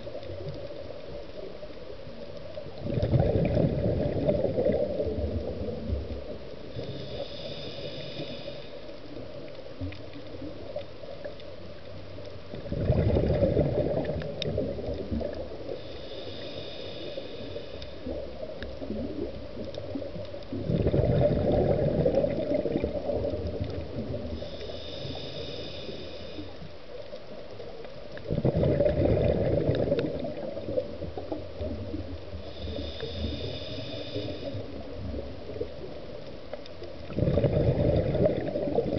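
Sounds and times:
exhaled bubbles: 0:02.7 - 0:08.2, 0:12.5 - 0:15.9, 0:18.0 - 0:26.0, 0:28.1 - 0:36.1, 0:36.9 - 0:38.9
regulator inhalation hiss: 0:06.6 - 0:09.1, 0:15.6 - 0:18.2, 0:24.3 - 0:26.7, 0:32.3 - 0:34.8.

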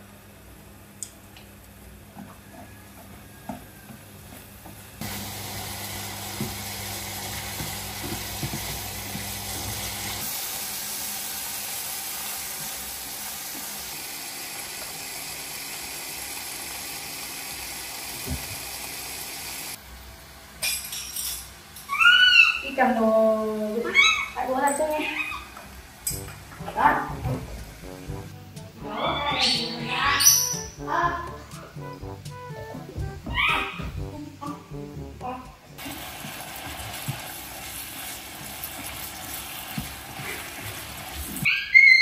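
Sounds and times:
meat sizzling in a frying pan: 0:05.0 - 0:19.8, 0:35.8 - 0:41.5.

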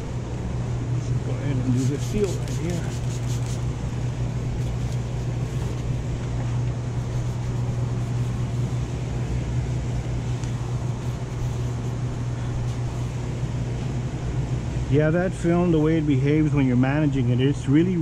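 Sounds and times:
low machine hum: 0:00.0 - 0:18.0.

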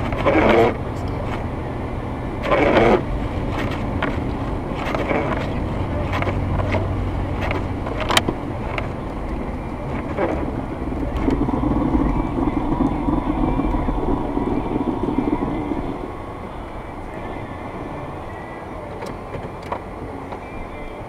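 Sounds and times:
car engine and tyre rumble: 0:00.0 - 0:21.0.

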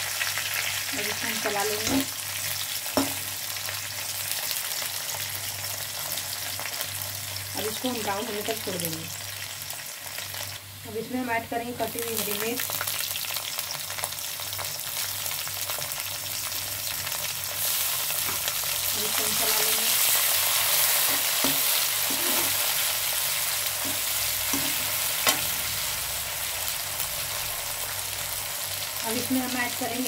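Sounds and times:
food sizzling in hot oil: 0:00.0 - 0:30.0
spatula tapping metal pan: 0:03.0 - 0:03.2, 0:23.8 - 0:25.6.

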